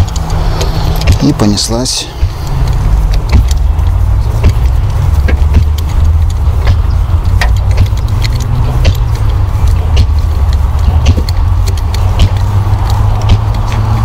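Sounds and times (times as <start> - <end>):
light metallic clicks: 0.0 - 1.2
steady low rumble: 0.0 - 14.0
spark plug wrench turning: 2.4 - 14.0.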